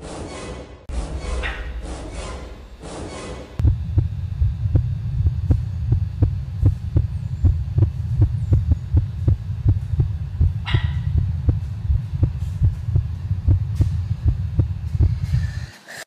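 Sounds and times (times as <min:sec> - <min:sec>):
steady low hum: 0:00.9 - 0:16.0
heartbeat-like thudding: 0:03.6 - 0:15.6.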